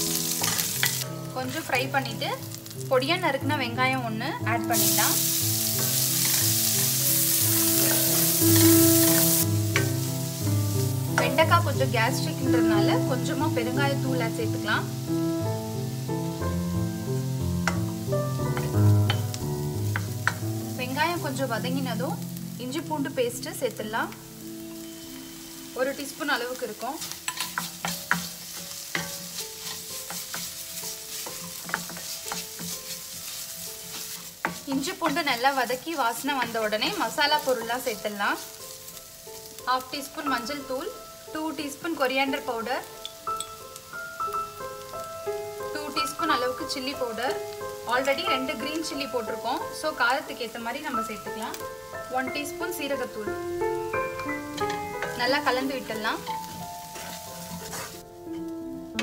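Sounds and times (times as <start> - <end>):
onion sizzling in hot oil: 0.0 - 59.0
soft background music: 0.0 - 59.0
spatula scraping a metal pan: 0.4 - 1.0, 5.6 - 10.0, 27.0 - 35.6, 56.0 - 58.5.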